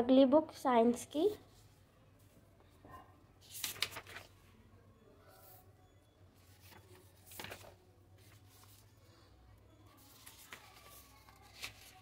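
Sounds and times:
book pages turning: 3.4 - 4.4, 6.4 - 9.1, 9.9 - 12.0.

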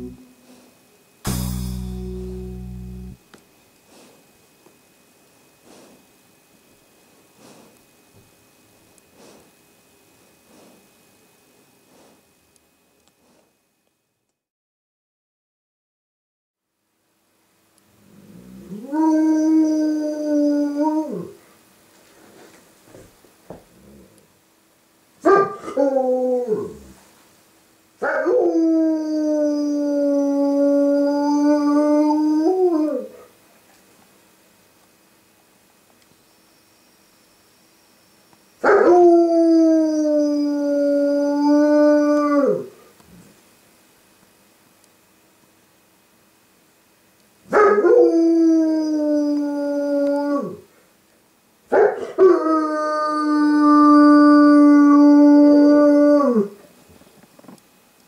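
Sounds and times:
dog howling: 18.4 - 21.4, 25.2 - 27.0, 28.0 - 33.2, 38.6 - 42.8, 47.5 - 50.7, 51.7 - 56.6.

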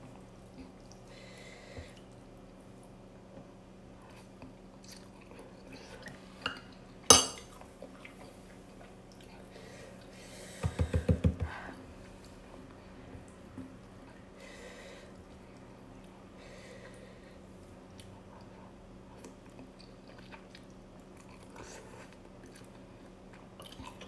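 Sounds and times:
spoon clinking on ceramic bowl: 7.1 - 7.4.

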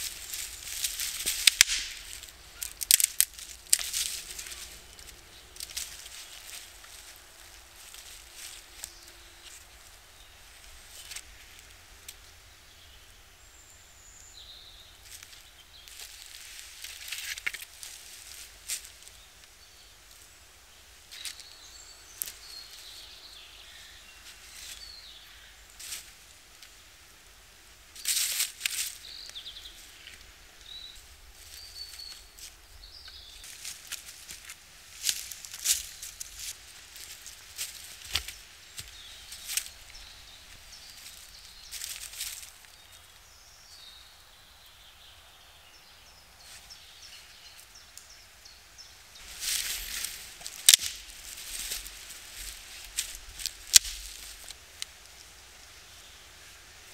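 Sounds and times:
footsteps on leaves: 0.0 - 11.8, 15.0 - 19.3, 21.1 - 26.8, 28.0 - 43.2, 49.2 - 55.4
birds chirping: 0.0 - 27.0, 27.9 - 56.9
sticks and leaves crackling: 0.0 - 43.8, 46.4 - 56.9.

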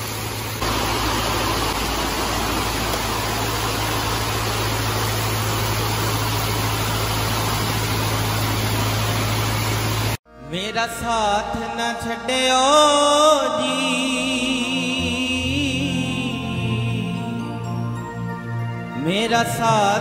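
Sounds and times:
heavy rain pouring: 0.0 - 10.2.

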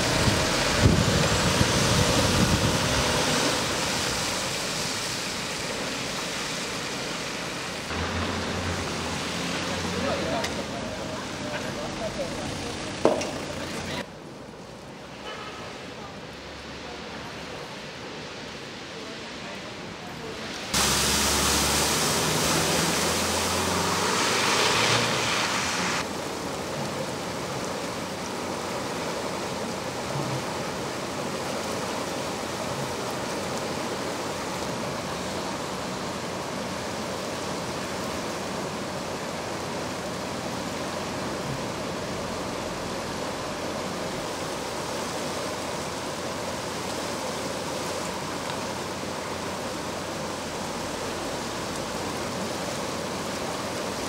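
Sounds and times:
loud rush of noise: 0.0 - 14.1, 16.2 - 26.3
river rushing: 0.0 - 54.0.

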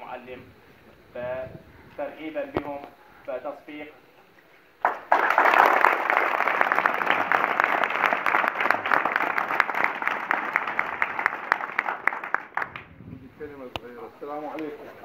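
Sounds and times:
boys clapping: 4.8 - 13.0.

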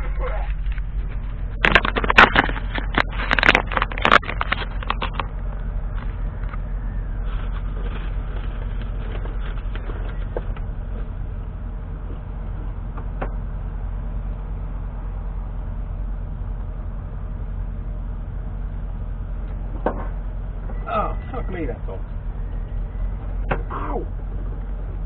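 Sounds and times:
car engine running: 0.0 - 25.0
road noise: 0.0 - 25.0
sharp clicks and knocks: 0.4 - 6.7.

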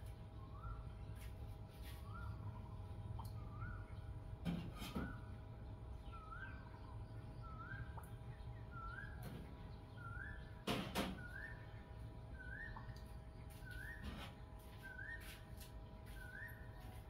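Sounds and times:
bird whistling call: 11.2 - 11.7, 12.4 - 15.4.

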